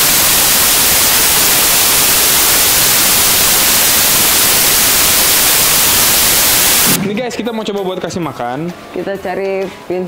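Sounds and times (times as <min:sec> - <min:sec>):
white noise static: 0:00.0 - 0:07.2.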